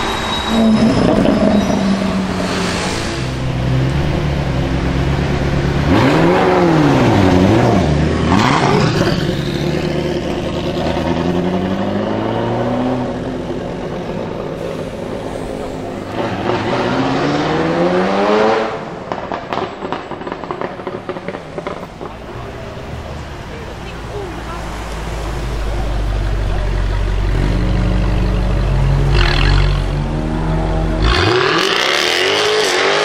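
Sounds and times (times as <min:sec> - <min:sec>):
sports car engine revving: 0:03.4 - 0:14.0, 0:26.0 - 0:33.0.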